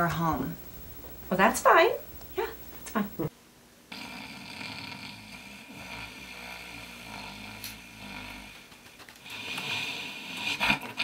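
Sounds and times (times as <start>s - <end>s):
man snoring: 3.9s - 11.0s.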